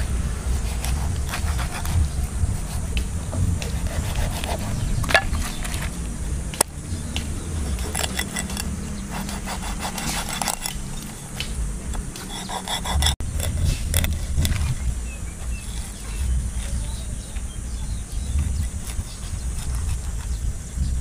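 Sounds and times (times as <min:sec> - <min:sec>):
wind rumble on microphone: 0:00.0 - 0:21.0
knife scraping fish backbone: 0:03.6 - 0:05.9, 0:07.6 - 0:14.6.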